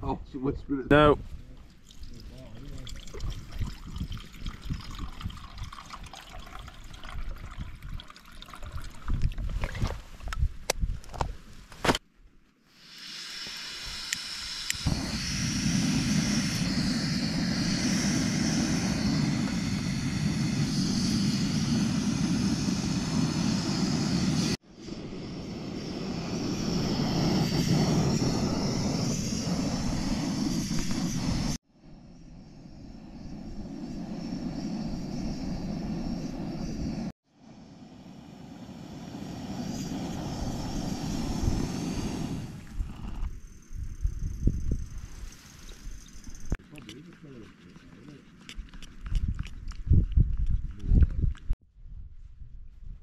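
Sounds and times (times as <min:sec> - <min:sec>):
water gurgling and trickling: 0:01.7 - 0:10.2.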